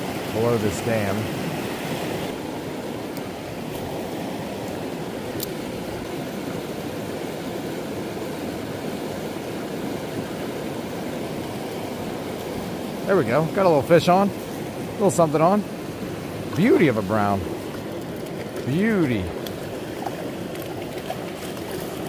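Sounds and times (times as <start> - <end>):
water rushing over a spillway: 0.0 - 22.0.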